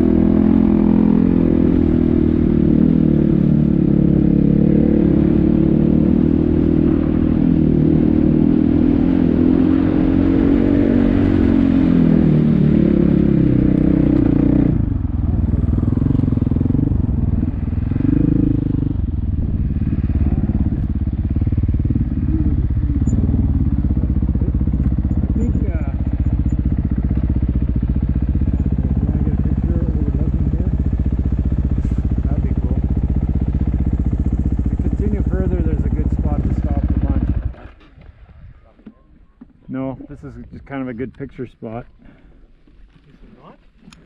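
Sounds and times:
dirt bike engine revving: 0:00.0 - 0:37.8.

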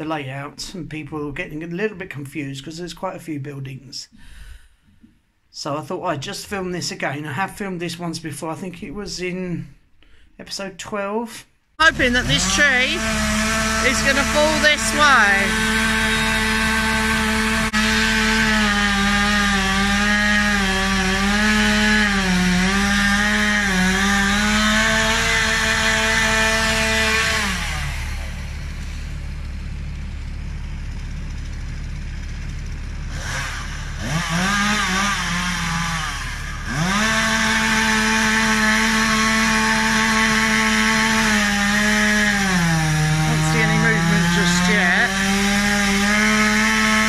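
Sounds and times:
chainsaw cutting tree: 0:11.8 - 0:47.0.

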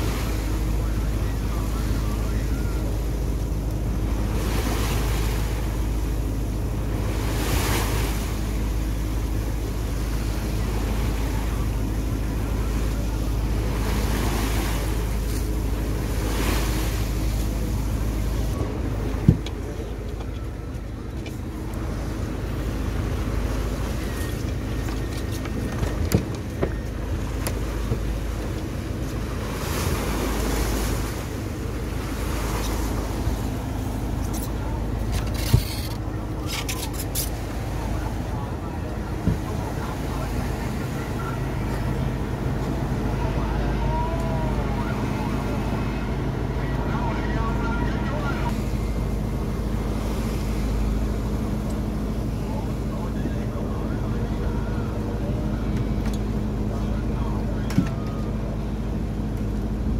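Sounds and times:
water rushing past: 0:00.0 - 0:20.0, 0:25.8 - 0:57.0
boat engine running: 0:00.0 - 0:59.9.

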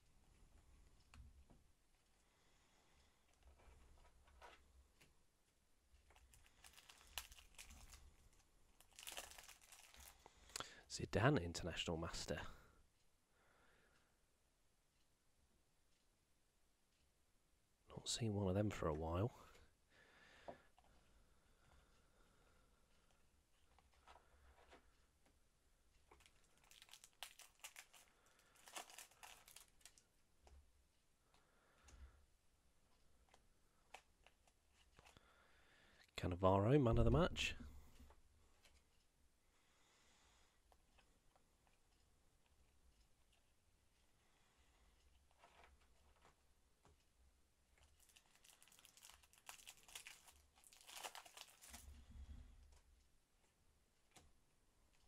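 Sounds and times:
foil packet crinkling: 0:06.1 - 0:10.3, 0:26.1 - 0:30.1, 0:47.8 - 0:52.0.

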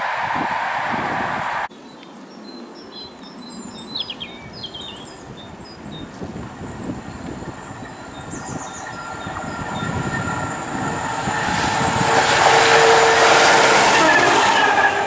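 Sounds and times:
diesel locomotive approaching: 0:04.8 - 0:15.0
multi-tone whine: 0:05.5 - 0:15.0.

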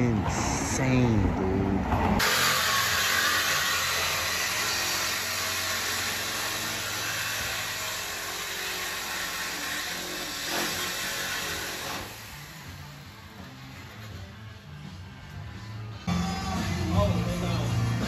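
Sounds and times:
power tool cutting metal pipe: 0:02.2 - 0:14.2.

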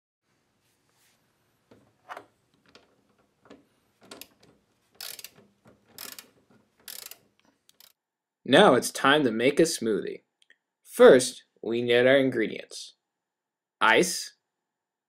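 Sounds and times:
socket wrench ratcheting: 0:04.0 - 0:08.0.

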